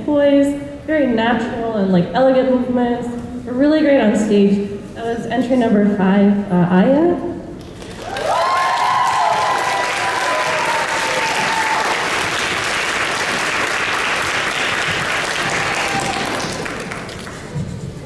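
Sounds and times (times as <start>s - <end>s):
audience applauding: 7.6s - 17.6s
high held cheer: 7.8s - 17.2s.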